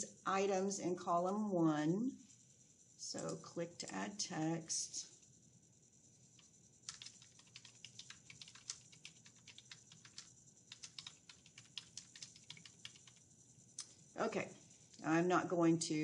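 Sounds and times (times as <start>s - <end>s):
keyboard typing: 6.8s - 13.2s.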